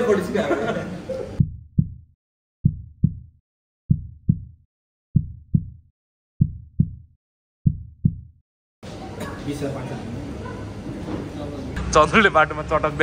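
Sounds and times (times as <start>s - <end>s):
heartbeat thumps: 1.4s - 8.4s.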